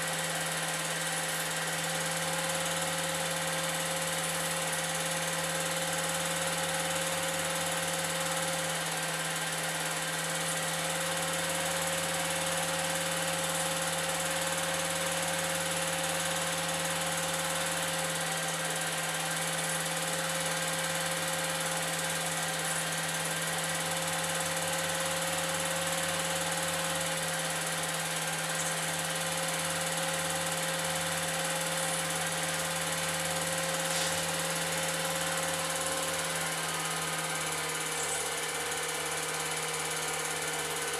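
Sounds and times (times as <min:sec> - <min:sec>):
film projector running: 0:00.0 - 0:40.9.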